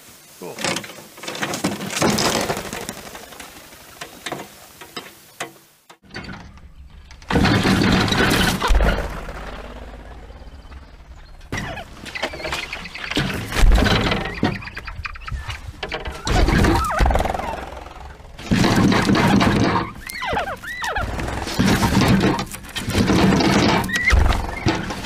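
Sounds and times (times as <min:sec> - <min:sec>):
bird crate knocking and rattling: 0:00.6 - 0:03.1, 0:04.2 - 0:09.6, 0:11.5 - 0:15.1, 0:18.4 - 0:25.0.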